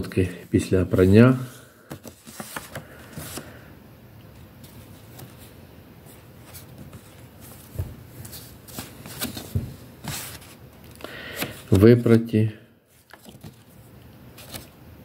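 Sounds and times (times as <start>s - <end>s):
paper banknotes rustling: 0.6s - 3.6s, 6.4s - 12.3s, 13.0s - 13.7s.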